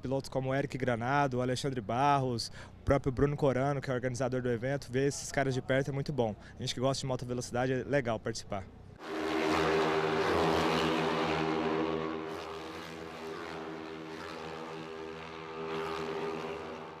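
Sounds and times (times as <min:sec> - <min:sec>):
racing motorcycles passing: 0:09.0 - 0:17.0.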